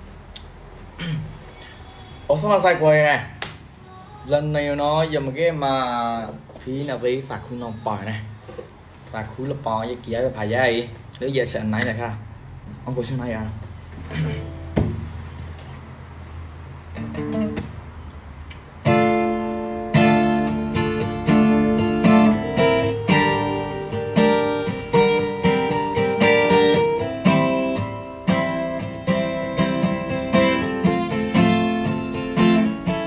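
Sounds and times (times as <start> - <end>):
acoustic guitar chords strummed: 14.0 - 15.2, 16.9 - 17.9, 18.8 - 33.0
acoustic guitar plucked notes: 14.1 - 15.1, 17.0 - 17.8, 18.8 - 33.0.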